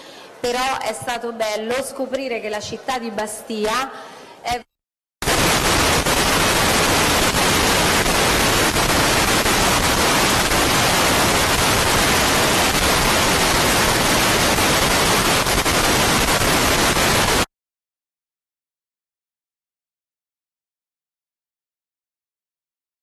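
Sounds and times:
loud static hiss: 5.2s - 17.5s.

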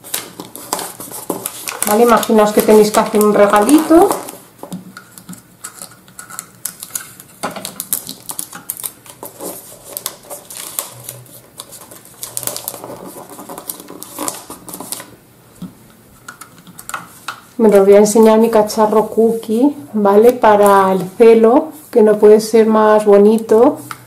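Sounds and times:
wrapping paper crinkling: 0.0s - 15.2s.

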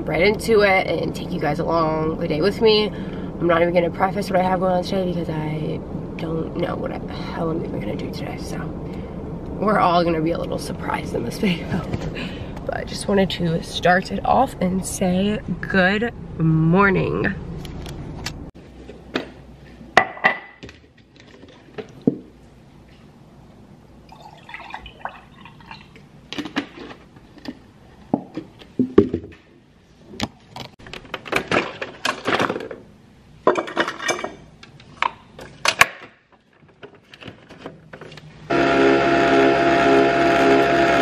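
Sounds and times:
juice pouring into a glass: 24.1s - 26.0s.

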